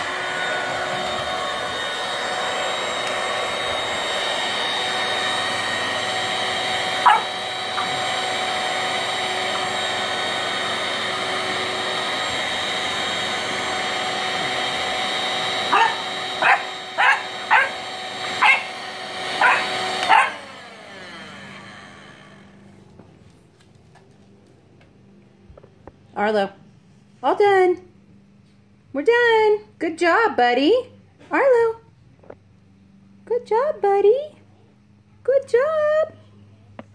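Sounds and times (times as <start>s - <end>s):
vacuum cleaner whining: 0.0s - 26.6s
puppy barking: 7.0s - 7.9s, 15.7s - 17.8s, 18.4s - 18.8s, 19.4s - 20.4s.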